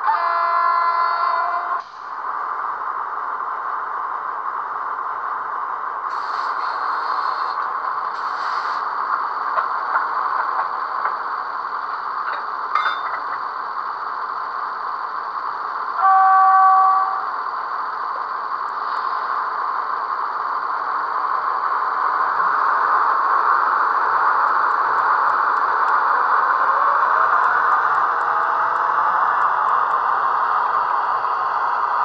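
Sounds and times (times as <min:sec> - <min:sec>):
diesel engine sound from small speaker: 0:00.0 - 0:32.0
short hisses: 0:06.1 - 0:07.6, 0:08.2 - 0:08.9.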